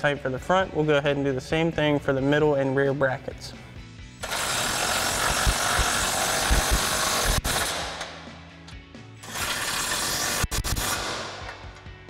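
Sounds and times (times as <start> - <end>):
impact wrench hammering: 4.2 - 8.2.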